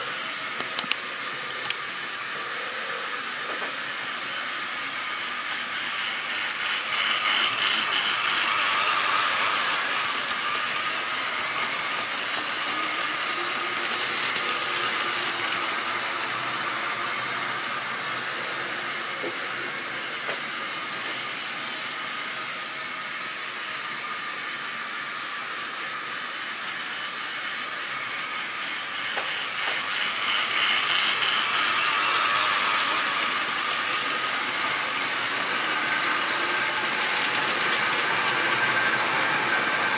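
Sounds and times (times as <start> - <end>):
whirr of small electric motors: 0.0 - 39.9
model train wheels clattering on track: 0.5 - 1.9, 3.4 - 3.8, 5.8 - 16.7, 29.0 - 39.9.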